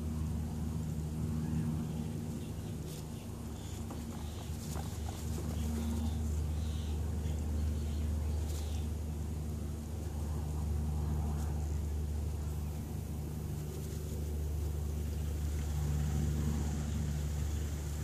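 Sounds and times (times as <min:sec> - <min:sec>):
steady low hum: 0:00.0 - 0:18.0
guinea pigs squeaking: 0:02.0 - 0:09.0.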